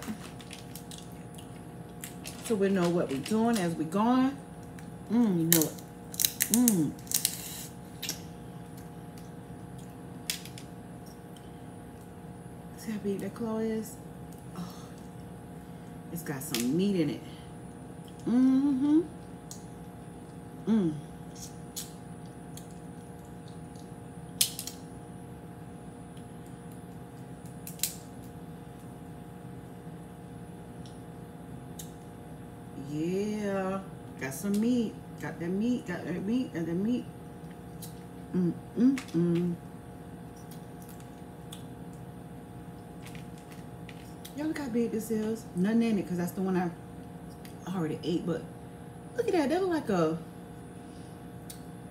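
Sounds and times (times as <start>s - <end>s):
crawfish shells cracking: 0.0s - 3.8s, 4.6s - 12.1s, 21.7s - 24.8s, 26.2s - 28.9s, 40.4s - 42.1s, 42.8s - 44.4s
steady low hum: 0.0s - 51.9s
person humming: 5.1s - 5.6s, 18.2s - 19.1s, 20.6s - 21.1s, 38.3s - 39.6s
shell clicks and cracks: 27.6s - 28.0s.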